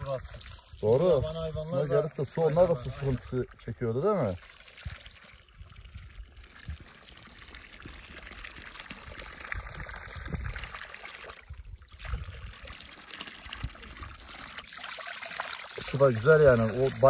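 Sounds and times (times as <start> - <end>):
water trickling into trough: 0.0 - 17.0.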